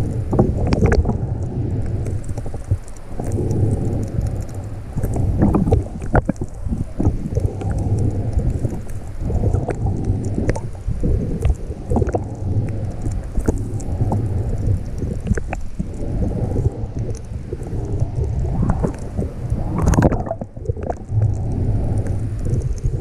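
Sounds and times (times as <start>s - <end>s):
underwater rushing and sloshing: 0.0s - 23.0s.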